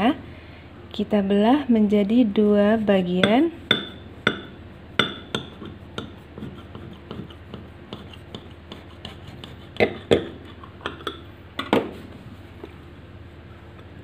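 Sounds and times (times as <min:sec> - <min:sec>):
knife sawing through cake: 0:05.8 - 0:09.8.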